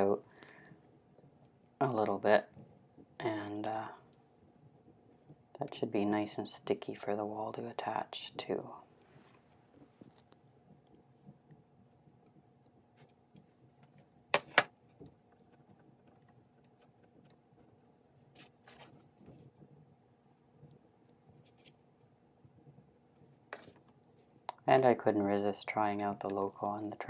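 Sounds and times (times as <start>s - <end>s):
faint steady hum: 0.0s - 27.0s
soft rustling: 8.6s - 27.0s
plastic objects handled on desk: 13.0s - 17.4s, 23.1s - 25.4s.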